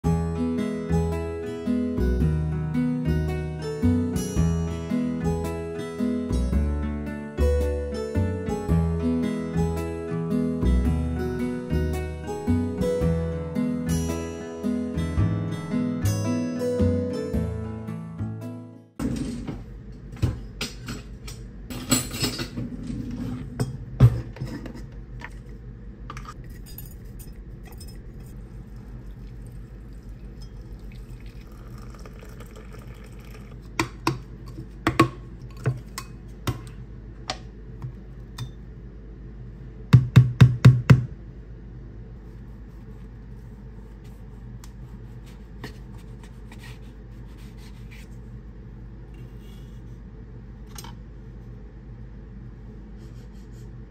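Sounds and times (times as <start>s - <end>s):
soft background music: 0.0s - 19.0s
glass and metal clinking: 26.3s - 28.4s.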